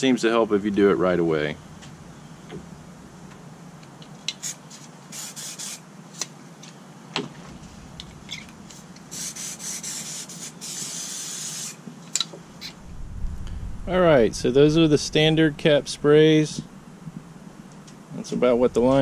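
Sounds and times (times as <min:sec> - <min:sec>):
spray hissing spurts: 0:04.3 - 0:06.3, 0:08.3 - 0:12.8.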